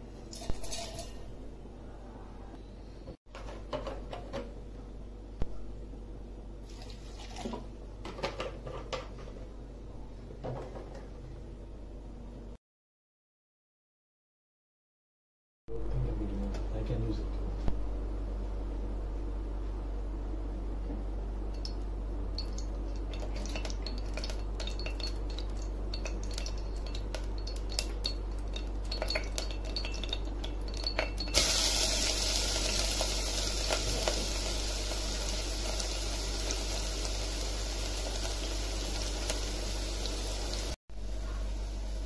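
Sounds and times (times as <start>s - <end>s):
oil crackling: 22.4s - 40.8s
onions sizzling in hot oil: 23.2s - 40.8s, 41.5s - 42.0s.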